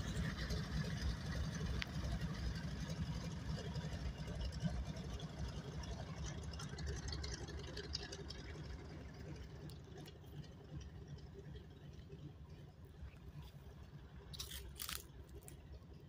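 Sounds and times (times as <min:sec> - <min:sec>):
propeller plane engine rumble: 0:00.0 - 0:16.0.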